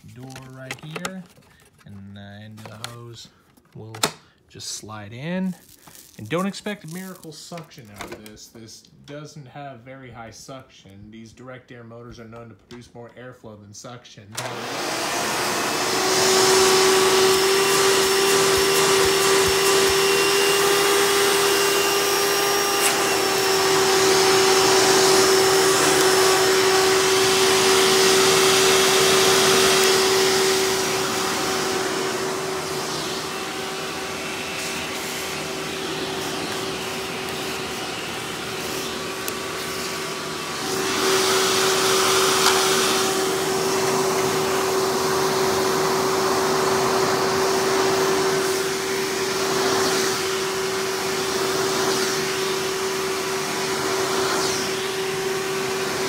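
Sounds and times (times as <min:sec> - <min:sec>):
vacuum cleaner motor whine: 0:14.3 - 0:56.0.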